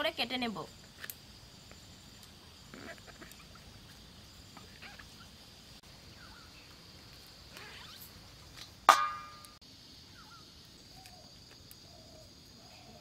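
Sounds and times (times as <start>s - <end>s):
high insect drone: 0.0s - 13.0s
faint animal calls: 4.6s - 5.4s.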